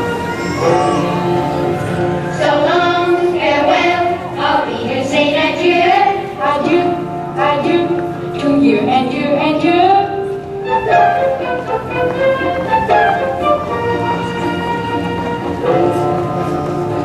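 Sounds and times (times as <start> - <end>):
loud music with singing voice: 0.0 - 6.4.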